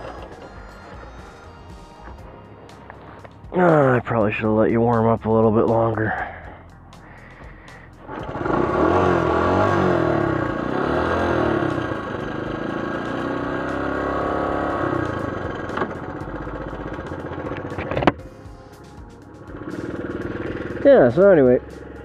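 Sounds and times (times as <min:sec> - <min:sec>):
motorcycle engine revving unevenly: 0:08.0 - 0:18.1, 0:19.2 - 0:22.0.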